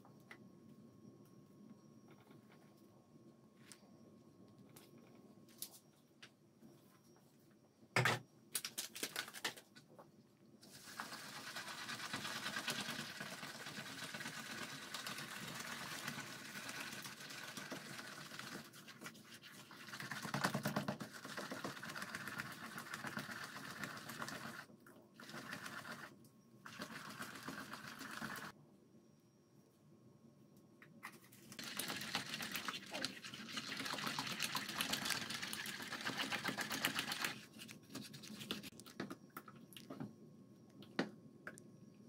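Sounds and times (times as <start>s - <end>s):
batter whisked in plastic bowl: 10.6s - 28.6s, 31.1s - 39.2s.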